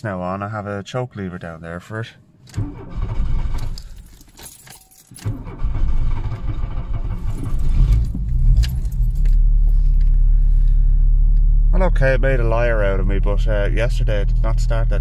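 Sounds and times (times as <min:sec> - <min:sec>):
car engine starting and idling: 0:02.3 - 0:15.0
keys jangling: 0:03.6 - 0:05.3, 0:07.3 - 0:10.1.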